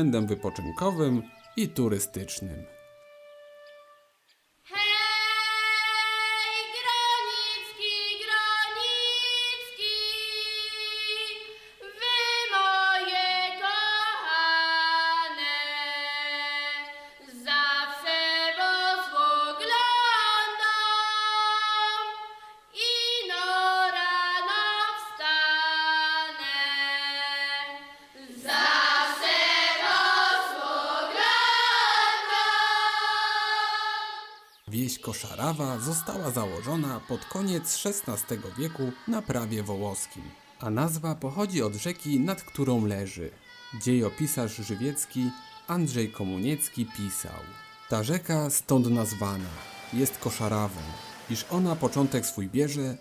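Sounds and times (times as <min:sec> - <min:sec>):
women singing together: 0:04.7 - 0:22.2, 0:22.8 - 0:34.5, 0:35.2 - 0:40.6, 0:49.0 - 0:52.3.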